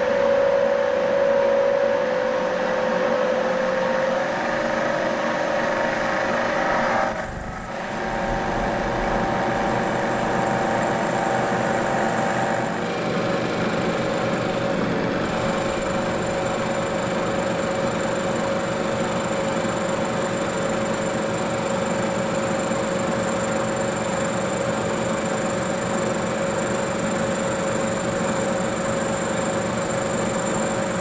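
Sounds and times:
spindle hum: 5.8s - 12.8s.

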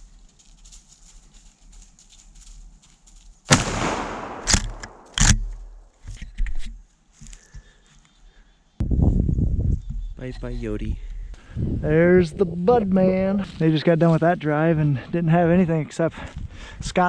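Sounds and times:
loud bang: 3.5s - 5.3s.

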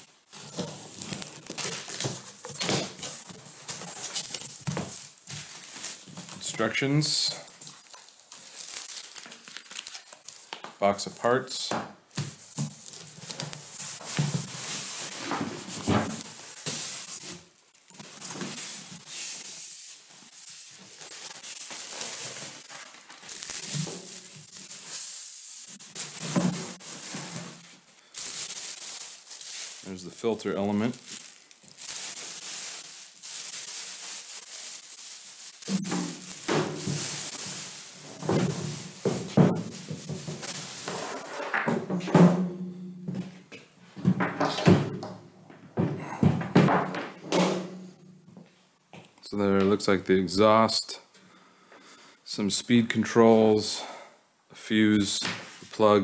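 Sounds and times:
plastic bag crinkling: 0.0s - 11.4s, 12.0s - 41.4s
cardboard flaps scraping and rustling: 13.2s - 16.4s
styrofoam rubbing: 35.6s - 41.5s.

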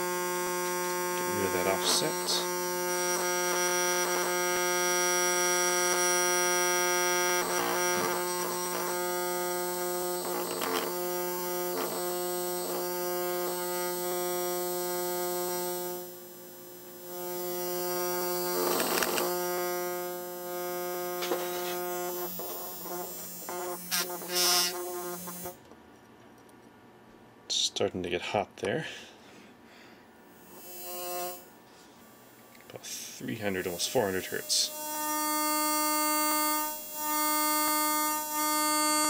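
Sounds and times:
actuator buzzing: 0.0s - 25.6s, 30.4s - 31.6s, 32.3s - 39.0s
device handled by hand: 18.6s - 19.4s, 21.2s - 21.8s.

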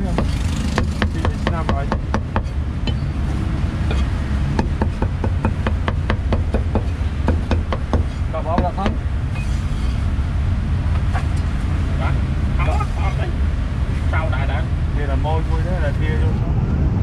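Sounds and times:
cleaver chopping on wooden block: 0.1s - 2.5s, 3.9s - 9.0s.

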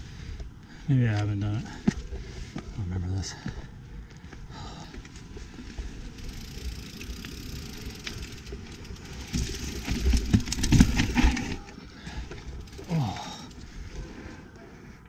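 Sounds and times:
tyres and wind rumbling: 0.0s - 15.0s
bike clattering knocks: 9.2s - 11.6s.

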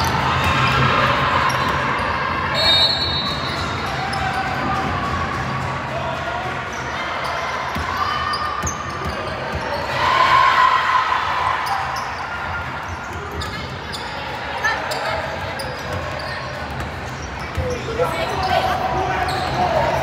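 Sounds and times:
basketball bouncing on court: 7.7s - 9.9s, 15.6s - 18.0s.

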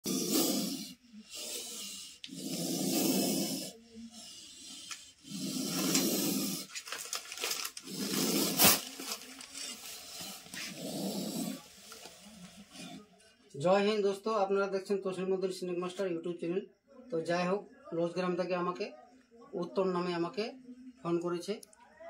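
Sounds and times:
snake hissing: 0.0s - 12.0s.

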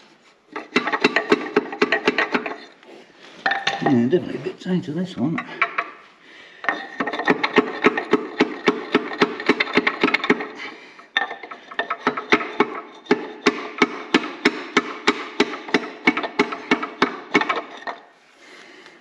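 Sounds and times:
hammer tapping on metal: 0.6s - 2.7s, 6.7s - 18.0s.

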